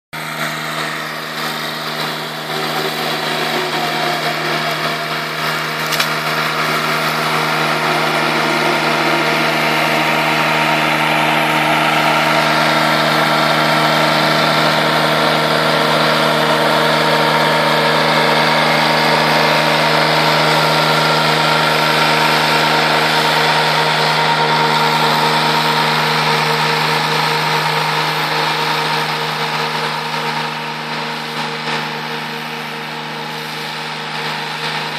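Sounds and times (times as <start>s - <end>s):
mower engine humming: 0.2s - 34.9s
sharp click: 5.8s - 6.2s.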